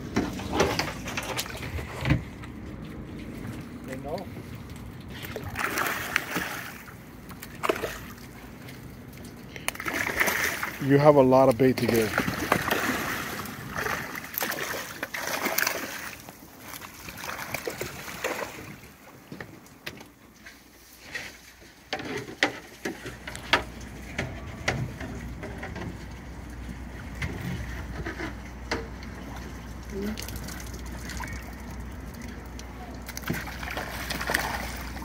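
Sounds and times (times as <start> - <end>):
fish splashing and thrashing: 0.0 - 10.8, 11.6 - 35.0
sharp pops and splashes: 11.9 - 18.6, 30.0 - 35.0.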